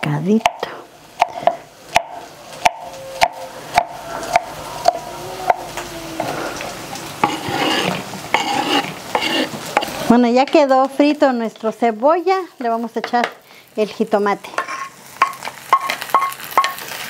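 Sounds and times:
food sizzling in oil: 0.1 - 17.0
knife chopping on wooden board: 1.2 - 5.6.

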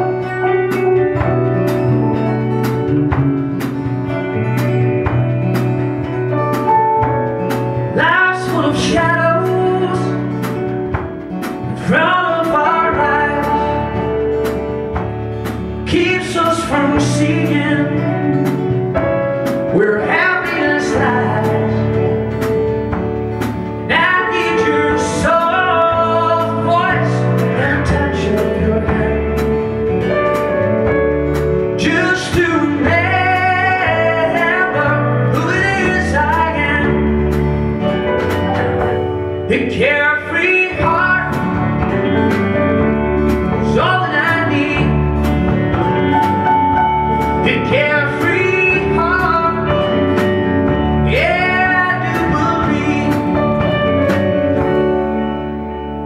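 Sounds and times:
guitar strumming: 0.0 - 56.0
man singing: 7.4 - 14.6, 15.5 - 22.4, 23.8 - 30.6, 31.7 - 37.4, 39.4 - 46.2, 47.2 - 54.8.

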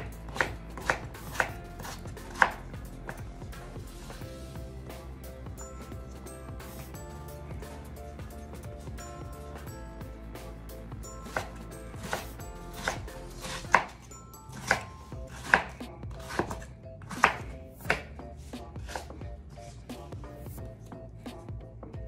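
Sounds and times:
knife chopping on wooden board: 0.0 - 3.2, 11.2 - 18.1, 18.8 - 19.1.

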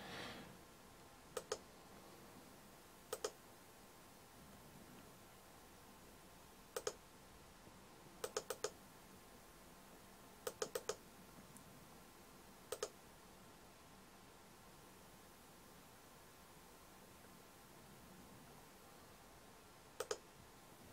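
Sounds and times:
faint steady hiss: 0.0 - 20.9
computer mouse double-clicks: 1.4 - 1.6, 3.1 - 3.4, 6.7 - 7.0, 8.2 - 8.8, 10.4 - 11.0, 12.7 - 13.0, 20.0 - 20.2.

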